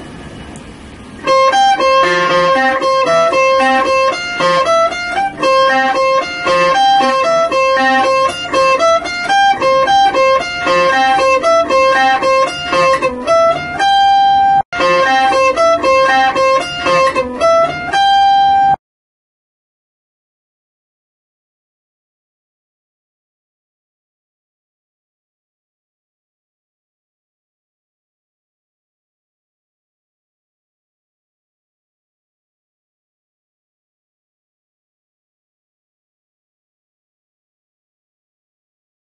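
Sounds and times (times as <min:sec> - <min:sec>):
guitar playing high single notes: 0:01.2 - 0:18.8.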